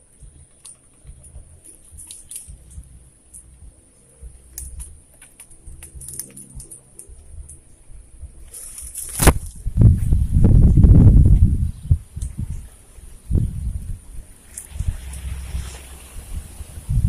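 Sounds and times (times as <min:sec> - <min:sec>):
low uneven rumble: 0:00.0 - 0:17.0
light clicks and ticks: 0:00.2 - 0:07.7.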